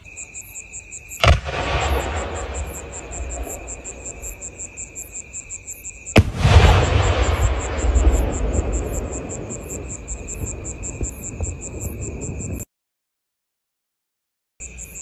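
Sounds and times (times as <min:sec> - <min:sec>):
crickets chirping: 0:00.0 - 0:12.7, 0:14.6 - 0:15.0
firework launch thump: 0:01.2 - 0:02.8, 0:06.2 - 0:07.6
firework burst boom: 0:01.2 - 0:04.0, 0:06.2 - 0:09.6.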